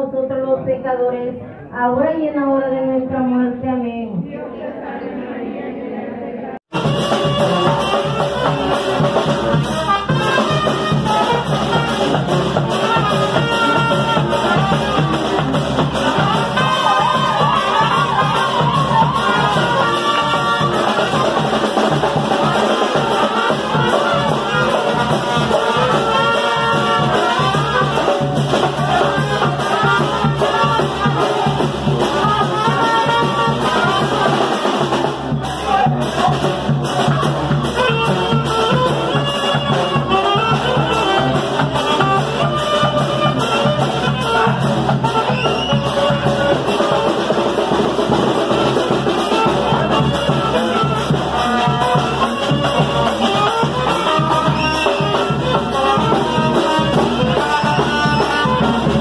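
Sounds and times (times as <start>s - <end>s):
steady drum beat: 6.7s - 59.0s
trombones and trumpets: 6.7s - 59.0s.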